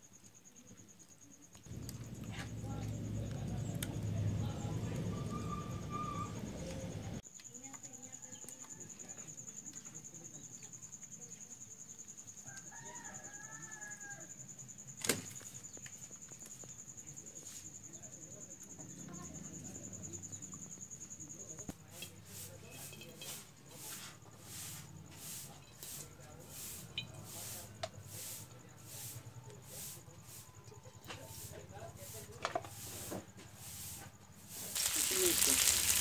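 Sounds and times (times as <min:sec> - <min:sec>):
high insect-like whine: 0:00.0 - 0:25.8, 0:34.0 - 0:36.0.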